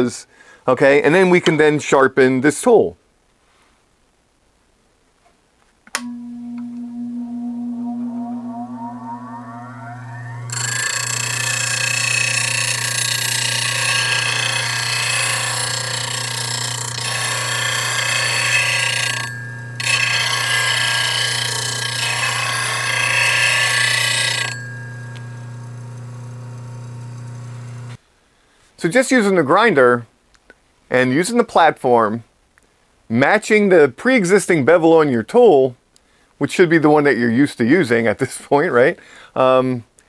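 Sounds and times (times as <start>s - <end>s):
electrical hum: 6.0s - 22.8s, 24.1s - 28.0s
bench grinder whine: 6.0s - 28.0s.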